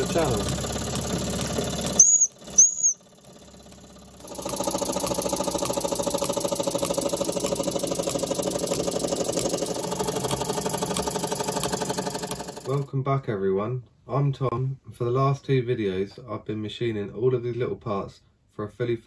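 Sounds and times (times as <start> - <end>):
model steam engine running: 0.0 - 12.9
short high chirps: 1.9 - 3.0.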